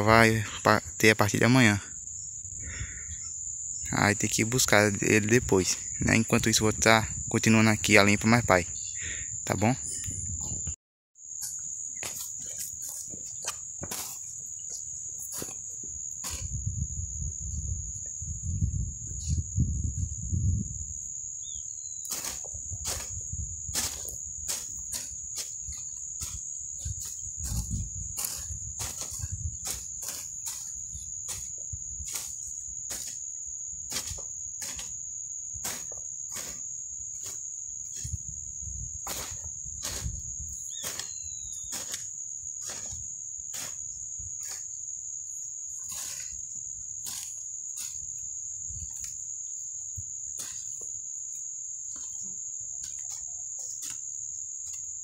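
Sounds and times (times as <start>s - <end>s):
high-pitched insect drone: 0.0s - 55.0s
hoe chopping dry soil: 11.4s - 16.6s, 22.0s - 38.4s, 39.0s - 44.9s, 45.8s - 51.0s, 51.9s - 55.0s
bird chirps: 21.4s - 22.1s, 40.6s - 41.8s.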